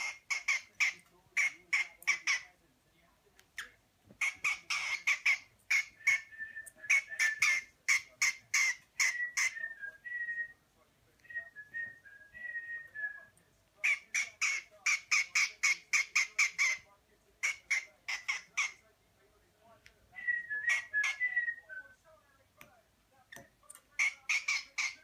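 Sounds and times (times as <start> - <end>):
cockatiel chirping: 0.0 - 2.5, 3.6 - 6.3, 6.9 - 9.6, 13.8 - 16.8, 17.4 - 18.8, 20.7 - 21.4, 24.0 - 25.0.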